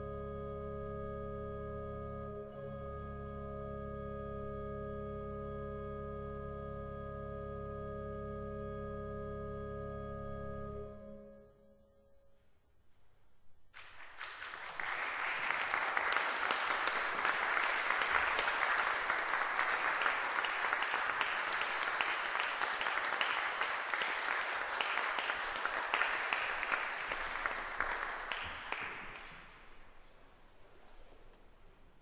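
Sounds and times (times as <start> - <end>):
audience applauding: 13.8 - 29.8.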